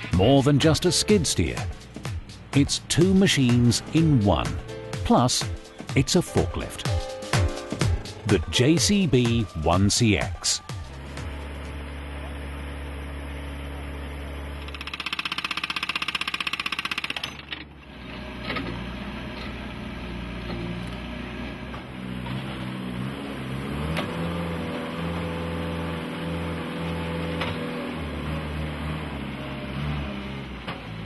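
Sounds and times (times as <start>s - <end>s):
backhoe engine running and revving: 0.0s - 6.1s, 10.7s - 31.0s
loud fast rattling clatter: 14.6s - 17.5s.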